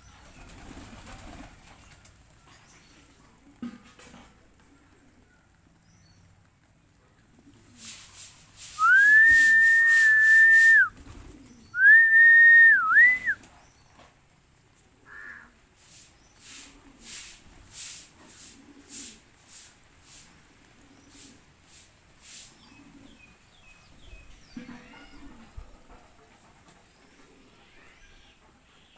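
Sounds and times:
person whistling: 8.8 - 10.9, 11.8 - 13.4.

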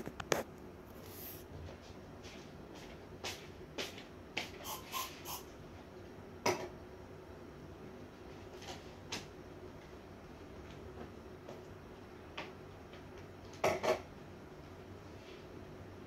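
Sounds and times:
faint room hum: 0.0 - 16.0
brushing sounds: 0.9 - 1.5.

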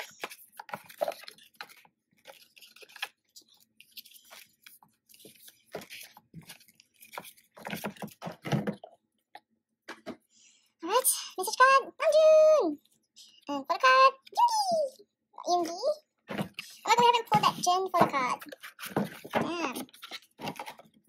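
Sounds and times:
paper and cardboard rustling: 0.0 - 9.0, 15.5 - 21.0.

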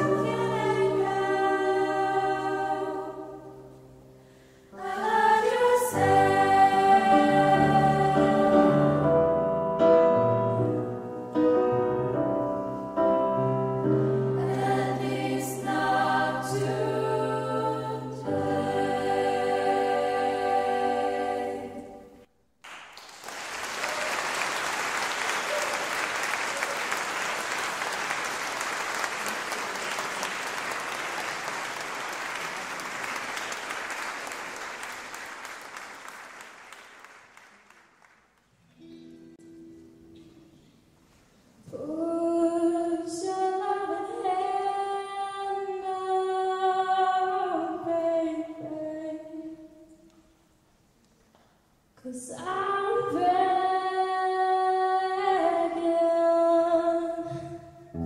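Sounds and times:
female choir singing: 0.0 - 3.7, 4.7 - 9.2, 14.2 - 22.3, 41.7 - 49.7
piano chords: 0.0 - 22.2
audience applauding: 22.6 - 38.5.

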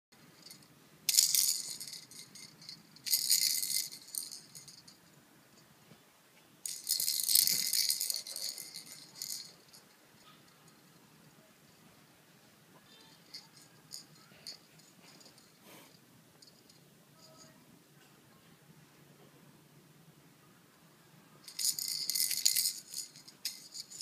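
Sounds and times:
toy rattle shaken: 0.2 - 5.0, 6.6 - 11.0, 13.1 - 15.6, 21.4 - 24.0.

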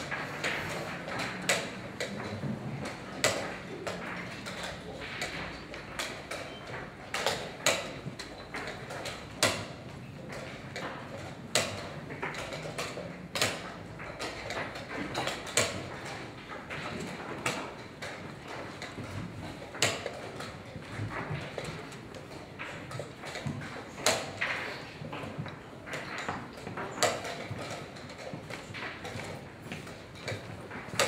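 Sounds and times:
chess pieces knocking on board: 0.0 - 22.0.

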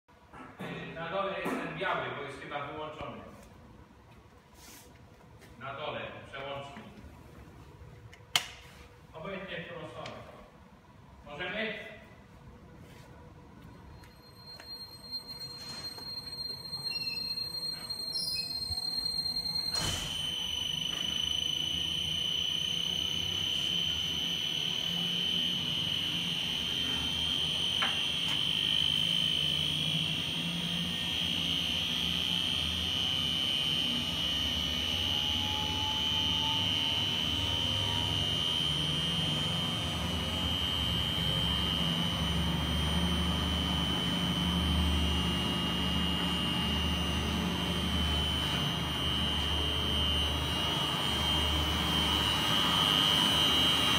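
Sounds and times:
mixer motor whining and humming: 13.6 - 53.9.

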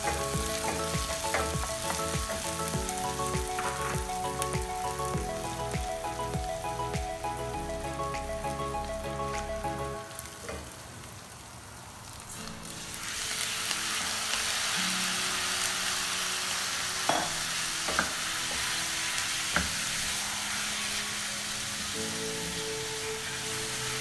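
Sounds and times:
meat sizzling in a pan: 0.0 - 6.7, 10.1 - 24.0
wooden spoon knocking on pan: 17.9 - 18.2.

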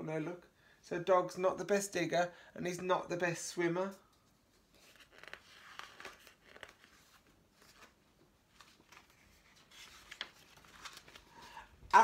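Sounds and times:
paper page turning: 4.3 - 11.5.

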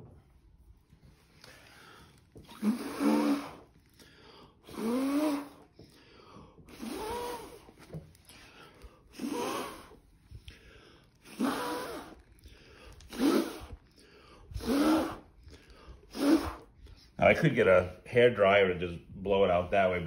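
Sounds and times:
person blowing breathy puffs: 1.2 - 17.2.

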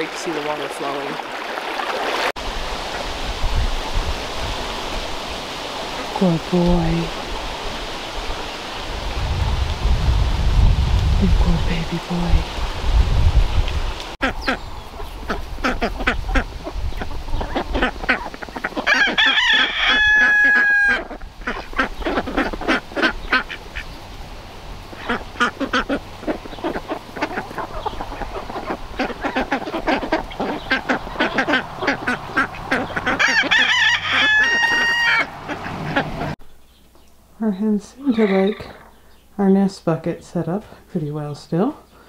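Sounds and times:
ducks quacking: 14.2 - 24.0, 24.8 - 36.4
hens clucking: 14.2 - 24.0, 24.8 - 36.4
rooster crowing: 18.9 - 21.2, 32.4 - 35.5.

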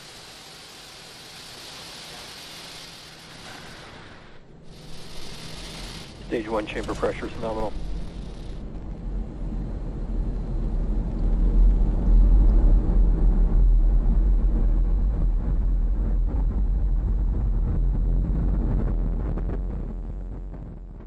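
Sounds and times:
rocket engines deep crackling rumble: 0.0 - 21.0.

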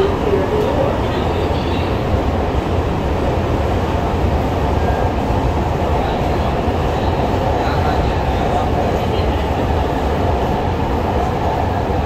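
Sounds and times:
metro train rumble: 0.0 - 12.0.

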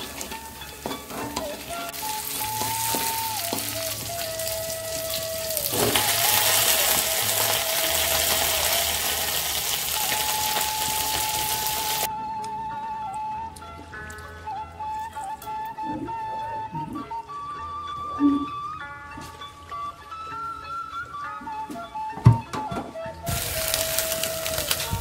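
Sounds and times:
spatula tapping and scraping wok: 0.0 - 4.0
food sizzling in oil: 0.0 - 12.1, 23.3 - 25.0
flute-like tune: 0.0 - 25.0.

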